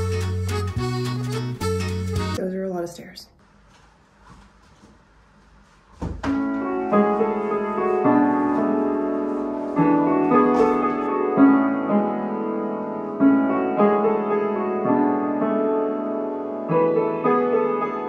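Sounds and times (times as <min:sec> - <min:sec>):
piano slow sustained chords: 0:06.5 - 0:18.0.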